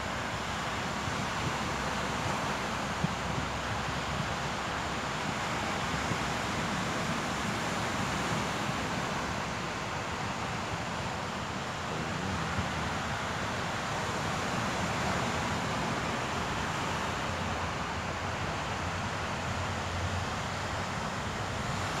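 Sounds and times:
sea waves breaking on beach: 0:00.0 - 0:22.0
wind noise on microphone: 0:00.1 - 0:11.3.

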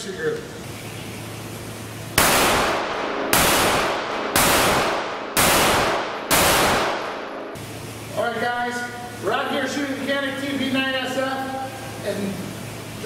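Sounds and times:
pistol shots echoing indoors: 0:02.2 - 0:07.6.

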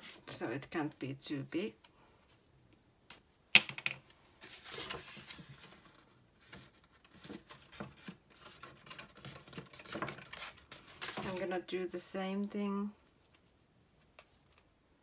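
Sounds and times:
paper rustling: 0:04.4 - 0:11.5.

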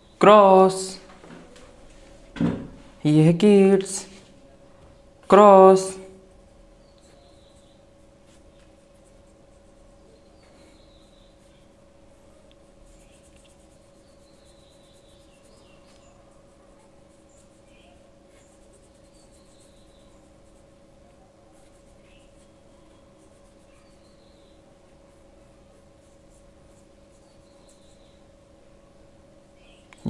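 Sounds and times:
faint hum: 0:00.0 - 0:30.0
paintbrush on paper: 0:05.4 - 0:28.3.

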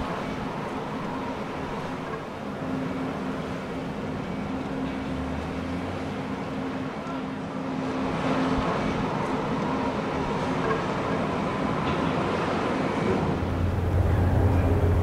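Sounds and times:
machinery rumble: 0:13.0 - 0:15.0
deep steady drone: 0:13.2 - 0:15.0.

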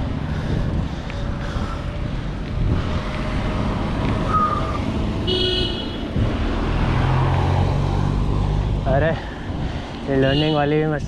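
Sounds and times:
wind on microphone: 0:00.0 - 0:10.1
car engine running close: 0:00.0 - 0:10.2
road traffic: 0:00.0 - 0:11.0
car horn beep: 0:04.3 - 0:06.1.

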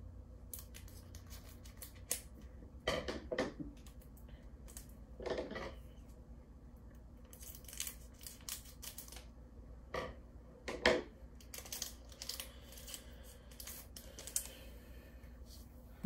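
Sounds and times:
trading cards and foil packs crinkling: 0:07.3 - 0:09.3, 0:11.4 - 0:14.6.

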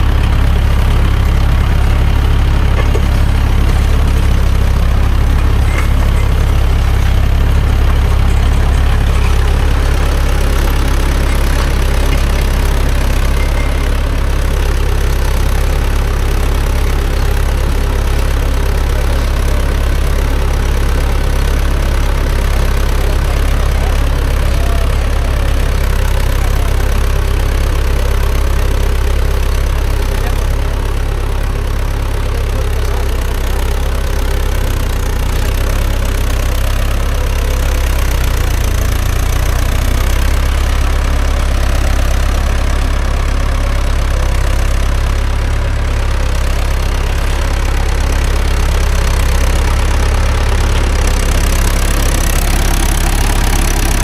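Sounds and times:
tractor engine droning: 0:00.0 - 0:54.0.

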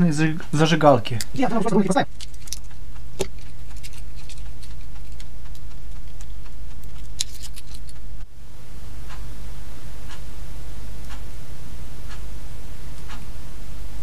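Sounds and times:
low hum: 0:00.0 - 0:14.0
small plastic clicks and rattles: 0:02.1 - 0:08.0.

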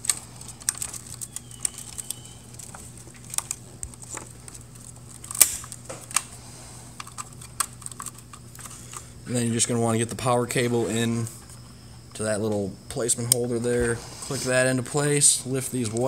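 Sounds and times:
plastic connectors clicking: 0:00.0 - 0:06.3
faint low hum: 0:00.0 - 0:16.0.

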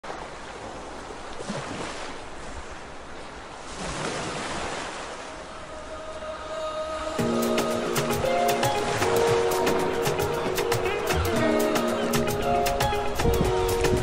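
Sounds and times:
surf washing onto beach: 0:07.2 - 0:14.0.

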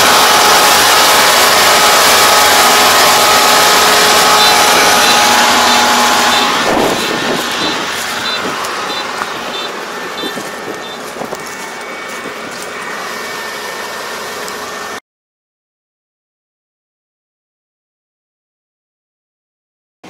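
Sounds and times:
combine harvester running: 0:00.0 - 0:15.0
back-up warning beeps: 0:03.8 - 0:12.3.

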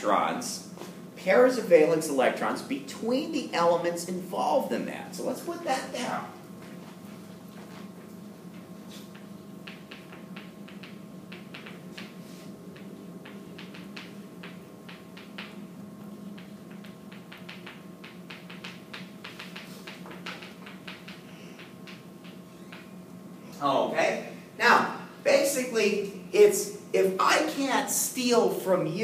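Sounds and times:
low room hum: 0:00.0 - 0:29.0
chalk tapping on chalkboard: 0:08.5 - 0:22.9.

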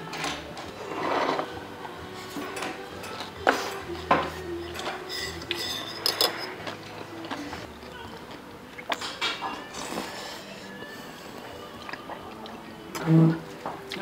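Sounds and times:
spoon and chopsticks clinking on bowl: 0:02.4 - 0:06.6.

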